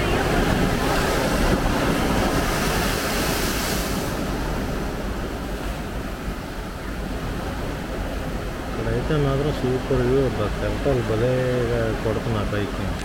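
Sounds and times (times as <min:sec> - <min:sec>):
wind buffeting microphone: 0:00.0 - 0:08.8
sea waves breaking: 0:00.0 - 0:13.0.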